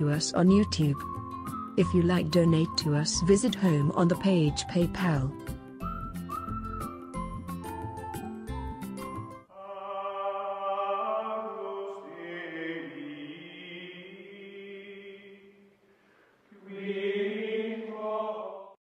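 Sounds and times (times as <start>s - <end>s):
chanting voices holding long notes: 9.5s - 15.6s, 16.5s - 18.8s.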